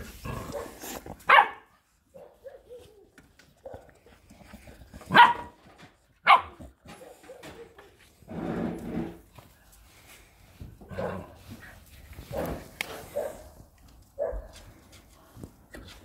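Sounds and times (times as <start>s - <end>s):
dog barking: 0.5s - 3.0s, 5.1s - 5.6s, 6.2s - 7.8s, 12.3s - 13.5s, 14.2s - 14.6s.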